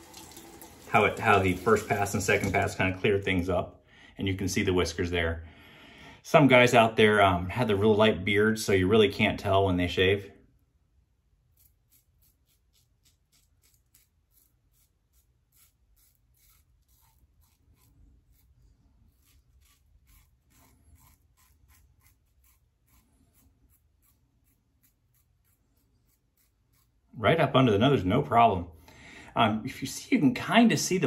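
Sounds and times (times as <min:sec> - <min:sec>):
razor scraping stubble: 0:11.4 - 0:27.2.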